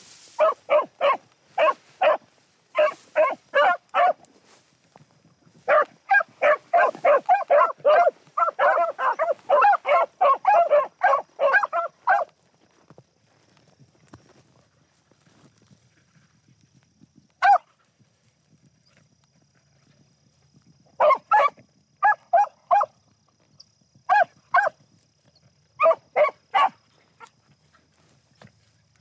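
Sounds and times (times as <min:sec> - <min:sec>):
hounds barking: 0:00.3 - 0:04.3, 0:05.6 - 0:12.4, 0:17.4 - 0:17.7, 0:21.0 - 0:23.0, 0:24.1 - 0:24.8, 0:25.8 - 0:27.4.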